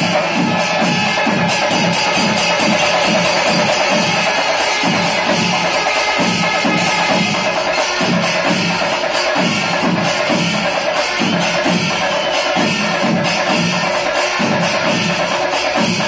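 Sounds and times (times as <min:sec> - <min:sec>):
cymbals clashing: 0:00.0 - 0:16.0
drums beating: 0:00.0 - 0:16.0.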